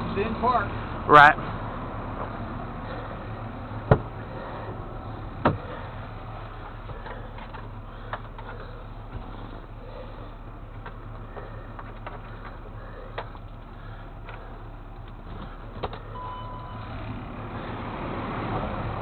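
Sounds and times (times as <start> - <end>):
engine idling: 0.0 - 19.0
sharp knocks: 3.9 - 4.1.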